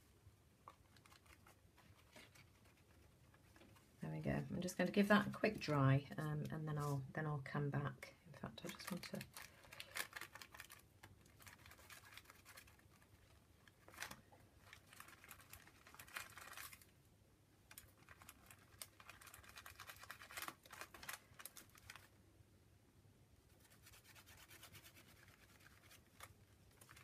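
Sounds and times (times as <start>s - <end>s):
fingertips rubbing paint on paper: 23.6s - 26.3s.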